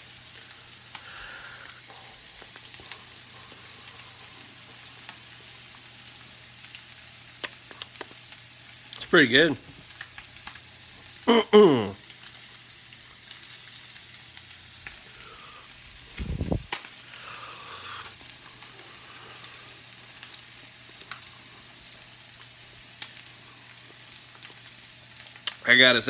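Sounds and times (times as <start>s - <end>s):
fish sizzling in butter: 0.0s - 26.0s
man's short vocal sounds: 11.3s - 12.0s.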